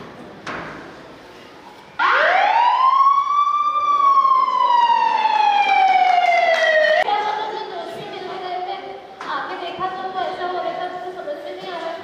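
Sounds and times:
siren wail: 2.0s - 7.0s.

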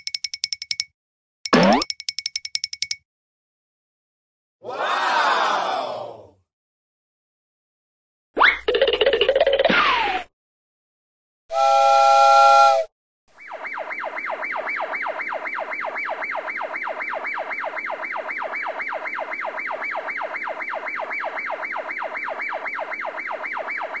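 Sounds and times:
warbling siren sound effect: 1.5s - 1.8s, 13.3s - 24.0s
electronic tone: 1.5s - 1.9s.

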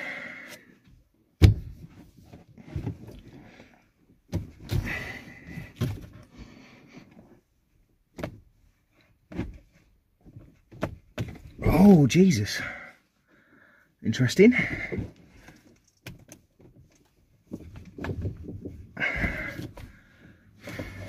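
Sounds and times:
steering wheel knocking and thumping: 1.4s - 3.2s, 8.1s - 8.5s, 9.2s - 11.6s, 16.0s - 20.0s.

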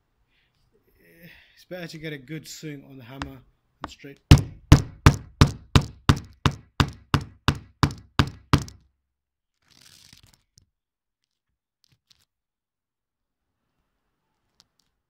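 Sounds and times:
hammer driving nail: 4.3s - 8.8s.

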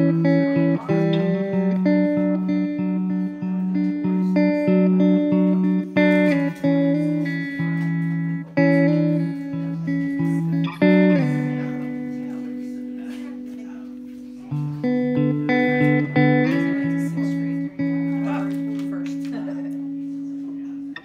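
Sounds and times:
guitar melody: 0.0s - 21.0s.

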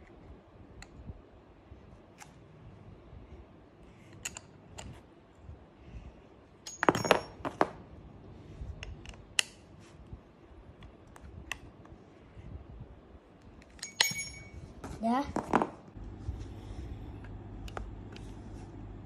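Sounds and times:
light metal clicks and clinks: 13.7s - 14.6s.

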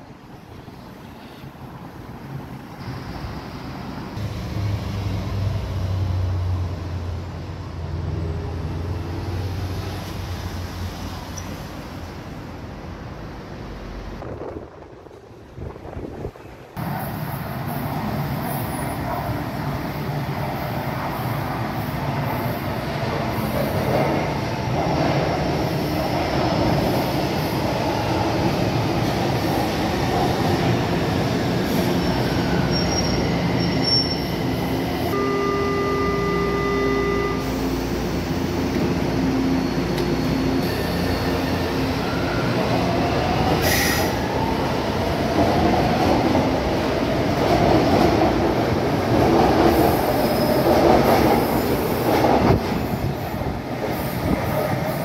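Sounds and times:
train wheels rumbling on rail: 13.8s - 35.1s, 37.5s - 55.0s
held tone: 35.1s - 37.9s.

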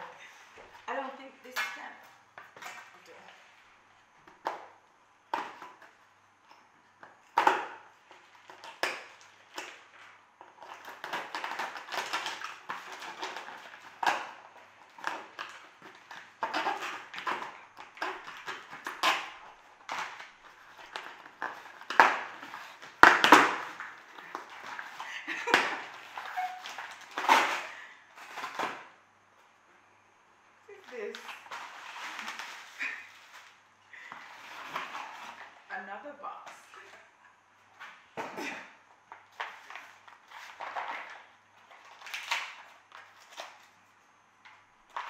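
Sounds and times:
packing tape tearing: 7.3s - 28.9s, 30.9s - 33.6s, 39.3s - 43.7s
cardboard and paper crackling: 30.7s - 35.7s.

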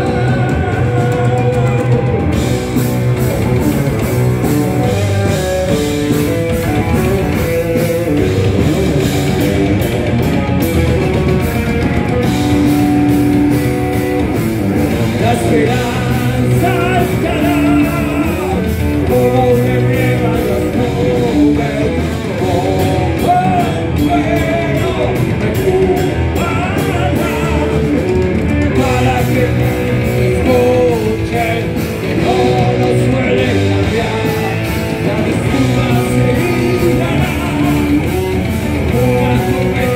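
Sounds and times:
person singing: 0.0s - 3.2s, 14.9s - 39.9s
distorted electric guitars: 0.0s - 39.9s
drum kit: 0.0s - 39.9s.

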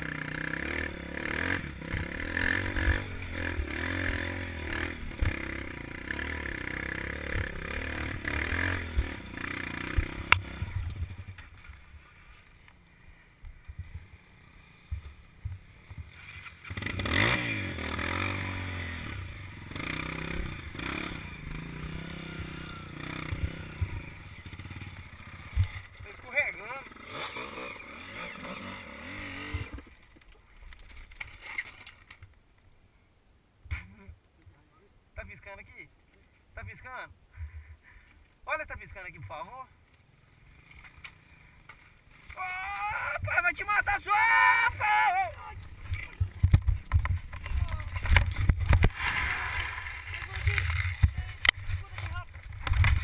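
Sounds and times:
dirt bike engine revving: 0.0s - 11.4s, 13.6s - 30.0s, 40.2s - 53.0s
knocks and scrapes: 45.6s - 53.0s.

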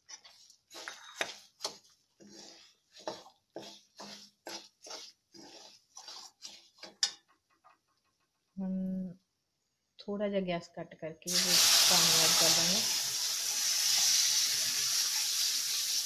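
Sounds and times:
steel spoon scraping a pan: 0.0s - 7.3s.

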